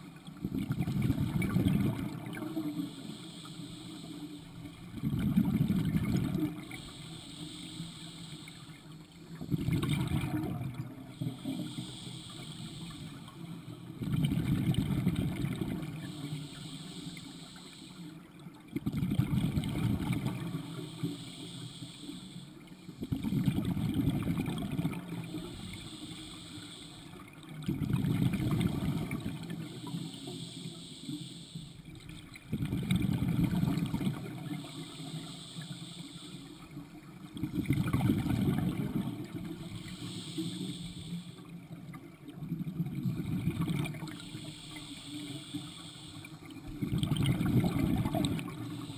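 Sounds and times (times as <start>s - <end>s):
regulator hiss on inhale: 0.0s - 18.6s, 19.4s - 42.0s, 42.7s - 48.9s
exhaled bubbles rushing: 0.4s - 2.8s, 4.6s - 6.8s, 9.4s - 11.4s, 13.9s - 16.1s, 18.7s - 20.7s, 23.0s - 25.6s, 27.4s - 30.0s, 32.0s - 34.6s, 37.2s - 39.9s, 42.0s - 44.4s, 46.6s - 48.9s.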